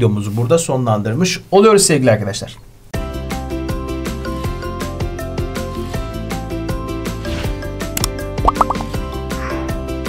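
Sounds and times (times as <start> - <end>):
upbeat music with steady beat: 8.0 - 9.0.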